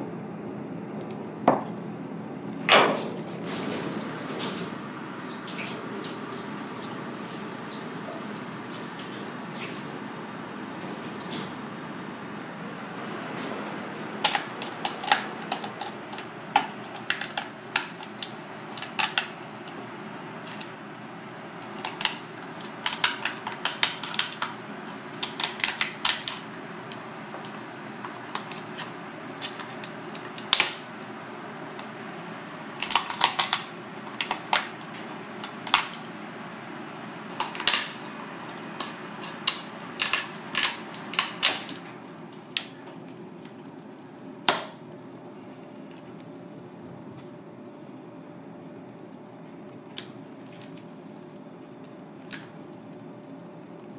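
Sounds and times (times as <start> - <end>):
room noise: 0.0 - 53.9
scissors crunching crab shell: 14.2 - 19.3, 21.7 - 24.5, 25.2 - 26.4, 32.8 - 34.7, 38.8 - 41.8.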